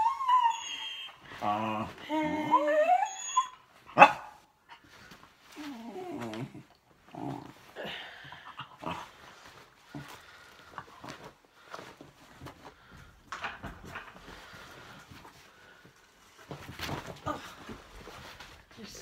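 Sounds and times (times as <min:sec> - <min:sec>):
dog whining and yipping: 0:00.0 - 0:03.8.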